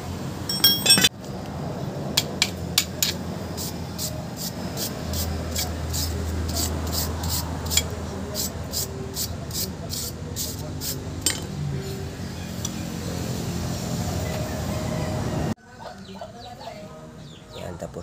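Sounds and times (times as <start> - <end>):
metal clatter: 0.5 - 1.2, 11.2 - 11.6
wire brush scrubbing rust: 3.0 - 12.8.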